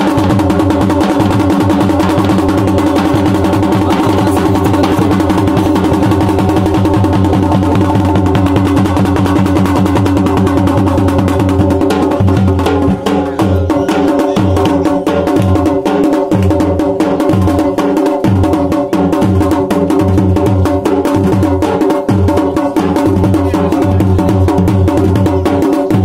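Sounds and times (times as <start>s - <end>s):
drum beaten in fast rhythm: 0.0s - 26.0s.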